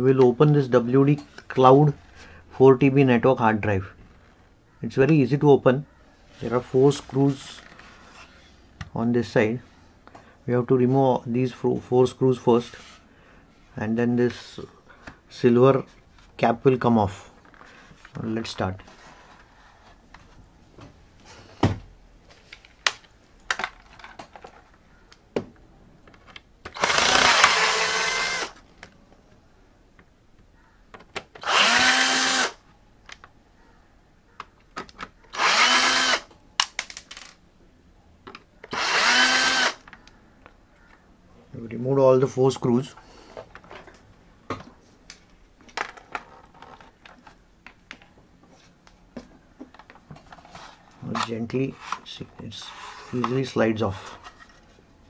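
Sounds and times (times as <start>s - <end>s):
cordless drill-driver running: 26.8s - 28.6s, 31.4s - 32.6s, 35.3s - 36.3s, 38.7s - 39.8s.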